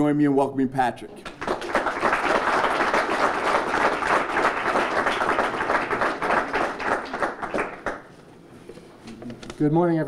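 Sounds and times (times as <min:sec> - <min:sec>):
audience applauding: 0:01.2 - 0:08.1.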